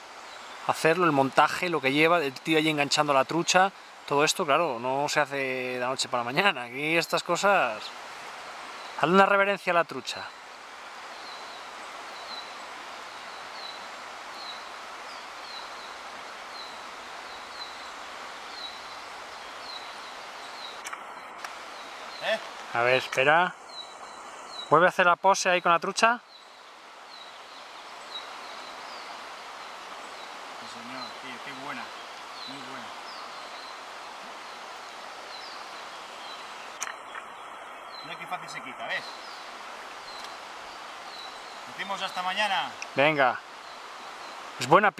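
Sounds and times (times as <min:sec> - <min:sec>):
river rushing over riffles: 0:00.0 - 0:44.9
sharp click: 0:20.8 - 0:21.6, 0:36.8 - 0:37.3.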